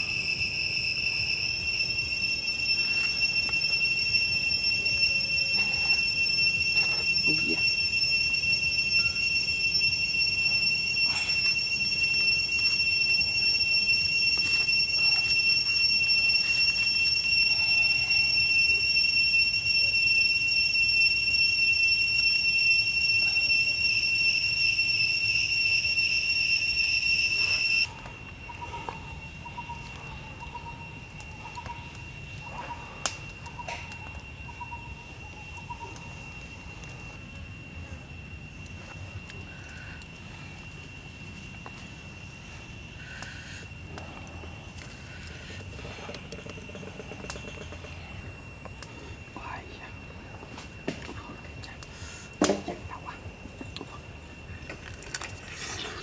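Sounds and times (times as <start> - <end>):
cicadas droning: 0.0 - 56.0
campfire snapping: 30.4 - 34.4, 36.0 - 47.5, 54.6 - 56.0.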